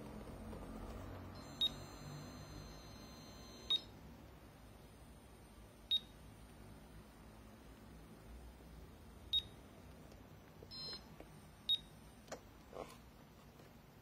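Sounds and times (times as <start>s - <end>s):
high-pitched electronic beeps: 1.3s - 3.9s
faint steady high tone: 1.3s - 4.0s.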